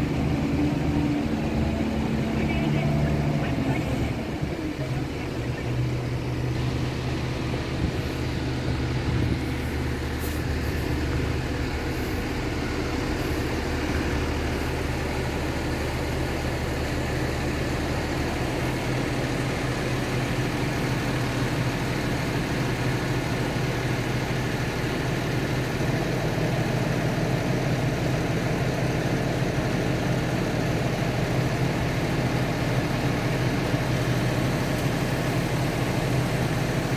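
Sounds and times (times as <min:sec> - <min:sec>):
diesel engine running: 0:00.0 - 0:36.9.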